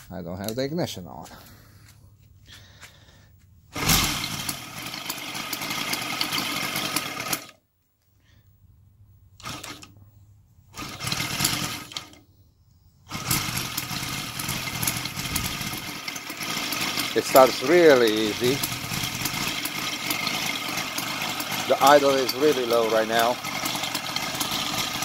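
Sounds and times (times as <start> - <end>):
model radial engine running: 3.8 - 7.6, 9.4 - 9.9, 10.8 - 12.2, 13.1 - 25.0
propeller being flipped: 13.1 - 25.0.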